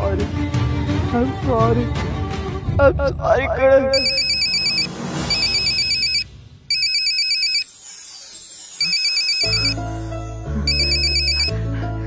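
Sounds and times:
electronic phone ringtone trilling: 4.0 - 7.7, 8.8 - 9.8, 10.7 - 11.5.

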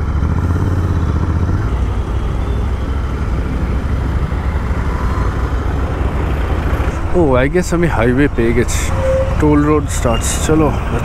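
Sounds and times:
motorcycle engine running: 0.0 - 6.9.

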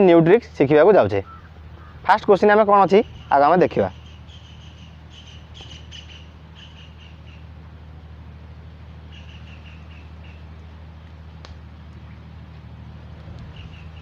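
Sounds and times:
low room hum: 0.0 - 14.0
bird chirping: 1.2 - 7.5, 9.0 - 10.6, 13.3 - 14.0.

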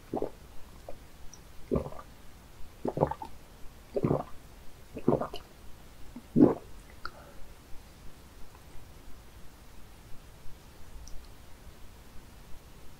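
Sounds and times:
gulping swallows of water: 1.7 - 2.0, 2.8 - 3.3, 4.0 - 4.3, 5.0 - 5.5, 6.2 - 6.7.

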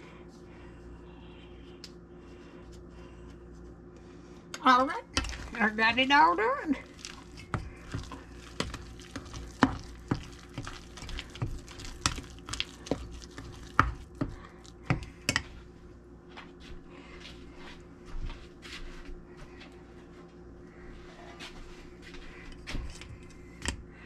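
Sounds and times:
metal spoon stirring batter in bowl: 5.1 - 15.6.

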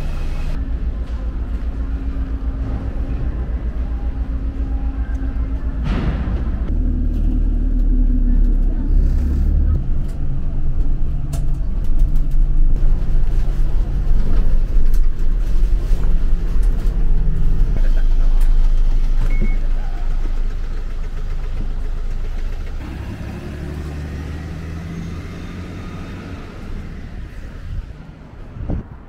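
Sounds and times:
bus engine and road rumble: 0.0 - 29.0.

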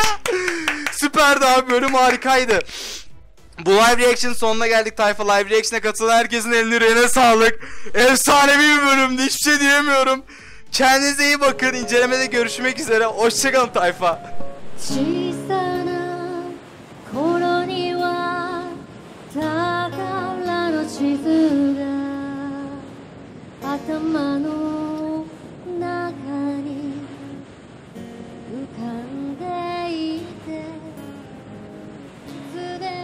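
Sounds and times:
light musical accompaniment: 10.7 - 22.8
woman singing with vibrato: 14.7 - 27.5, 28.4 - 31.0, 32.3 - 33.0.

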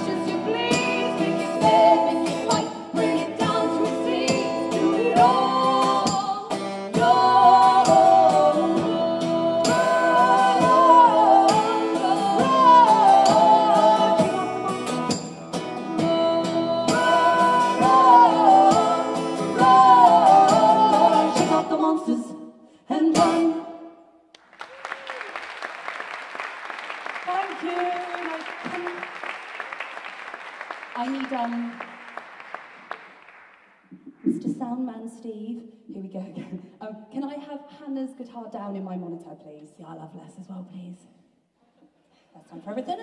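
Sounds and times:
women singing: 0.0 - 15.2, 15.9 - 23.8
acoustic guitars strumming: 0.0 - 21.8.

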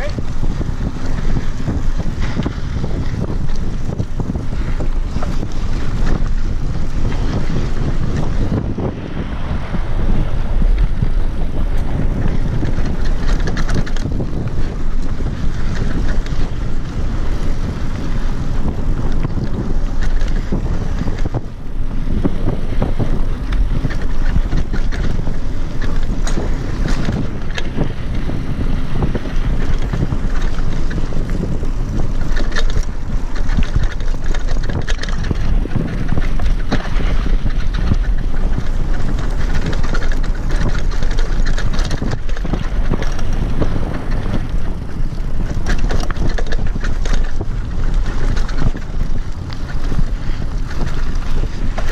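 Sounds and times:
small clicks and rattles: 0.0 - 8.7, 10.6 - 21.5, 22.3 - 51.9
wind rushing over microphone: 0.0 - 51.9.

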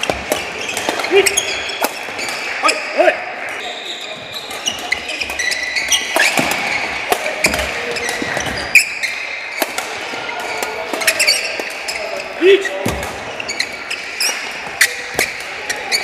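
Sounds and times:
shoes squeaking on court floor: 0.0 - 16.0
racket hitting shuttlecock: 4.5 - 11.9.

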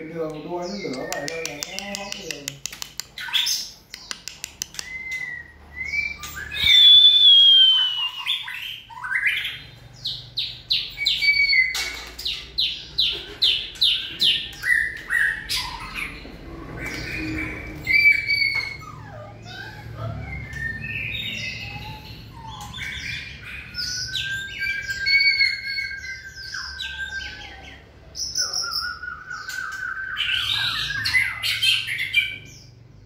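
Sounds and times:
bird singing whistles: 4.8 - 9.6, 10.7 - 11.9, 17.8 - 19.0, 20.3 - 27.4.

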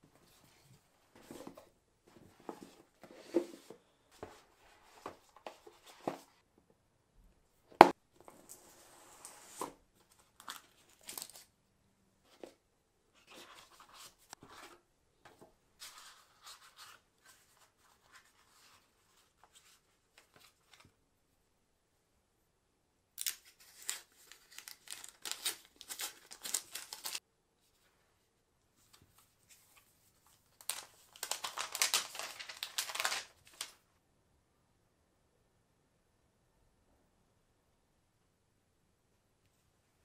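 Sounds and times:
paper leaflets shuffled: 23.2 - 27.2, 29.5 - 33.8.

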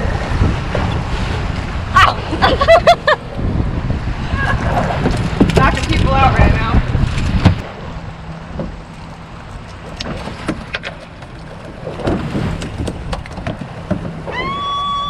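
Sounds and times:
water around boat: 0.0 - 15.0
wind: 0.0 - 15.0
fish flopping on deck: 9.5 - 15.0.

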